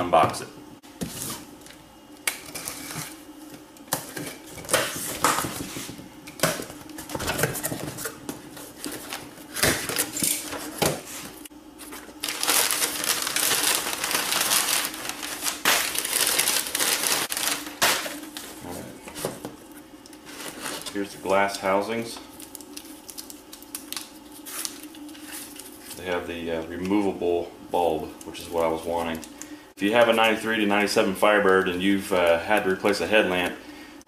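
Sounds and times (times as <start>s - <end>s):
packing material rustling: 11.8s - 19.4s.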